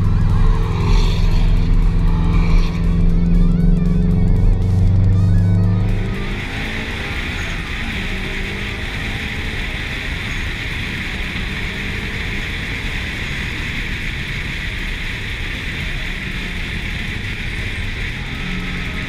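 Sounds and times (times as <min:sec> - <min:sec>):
faint car engine: 0:00.0 - 0:19.0.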